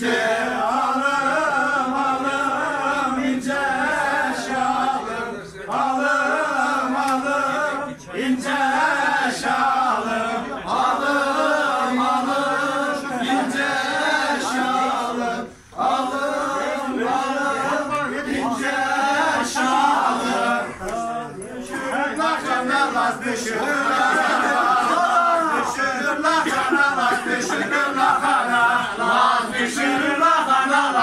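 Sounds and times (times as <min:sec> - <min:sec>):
men singing chant-like folk song: 0:00.0 - 0:31.0.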